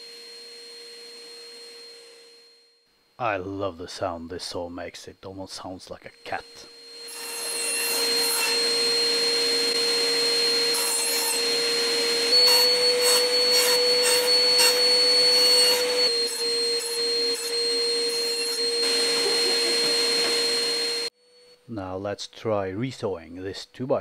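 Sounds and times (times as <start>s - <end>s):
bandsaw motor humming: 6.2s - 21.1s
bandsaw blade cutting wood: 7.0s - 21.1s.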